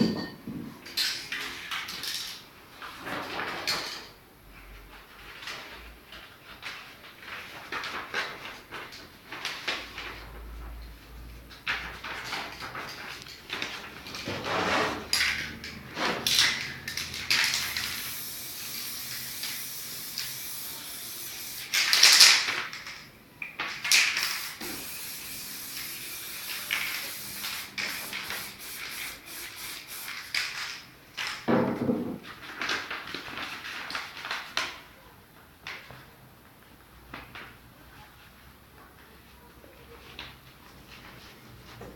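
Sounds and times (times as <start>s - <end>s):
spray paint can hissing: 16.3s - 22.5s, 23.9s - 30.8s.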